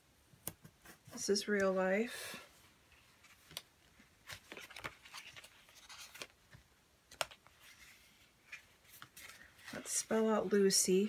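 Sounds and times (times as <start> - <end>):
paper sheets rustling: 4.2 - 10.8.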